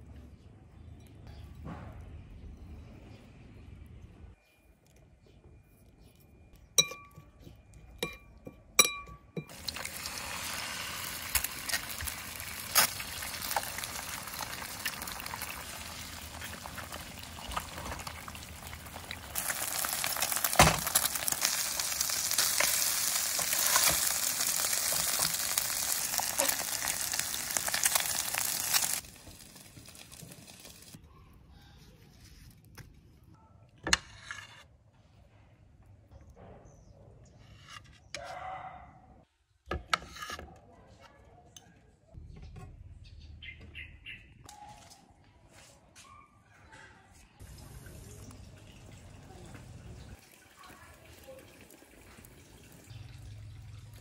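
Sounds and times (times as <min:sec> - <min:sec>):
metal spoon clinking ceramic bowl: 0:06.6 - 0:09.8
food sizzling in frying pan: 0:09.5 - 0:31.0.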